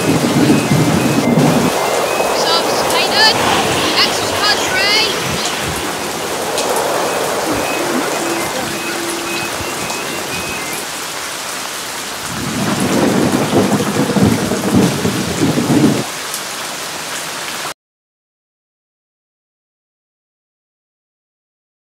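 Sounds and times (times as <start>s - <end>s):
thunder rumble: 0.0s - 16.1s
rain hiss: 0.0s - 17.7s.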